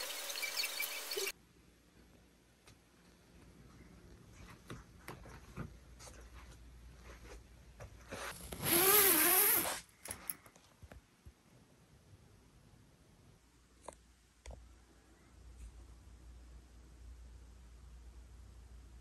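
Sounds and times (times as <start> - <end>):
tent zipper being pulled: 8.2 - 9.9.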